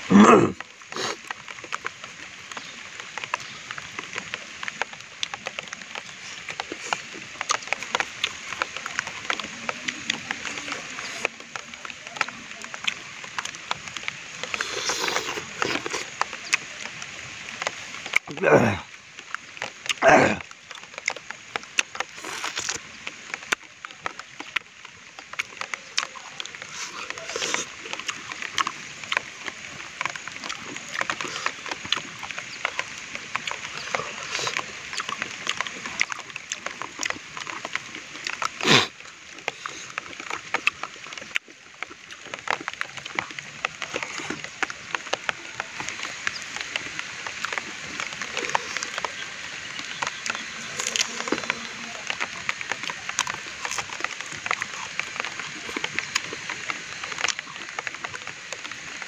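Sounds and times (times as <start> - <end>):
wet chewing and mouth-smacking: 0.0 - 1.9, 4.2 - 16.7, 19.6 - 59.0
banana leaf crackling: 19.6 - 59.0.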